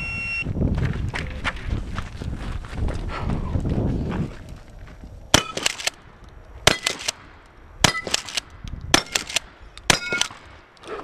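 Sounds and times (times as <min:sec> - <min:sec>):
shotgun shots: 0:05.3 - 0:06.0, 0:06.6 - 0:10.7
shotgun pump clacking: 0:08.0 - 0:10.4.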